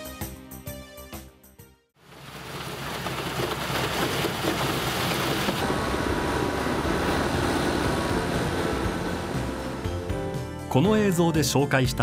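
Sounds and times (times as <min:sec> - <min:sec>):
snowplow blower rushing: 0:02.0 - 0:10.8.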